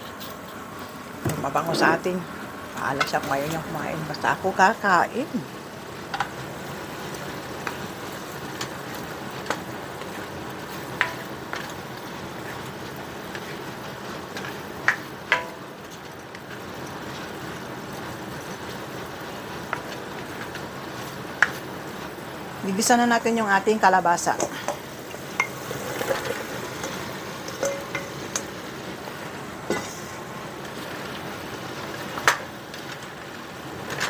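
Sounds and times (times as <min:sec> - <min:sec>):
meat sizzling in a pan: 0:00.0 - 0:34.0
metal spoon scraping a pan: 0:24.3 - 0:28.6
spoon clinking: 0:25.4 - 0:28.5.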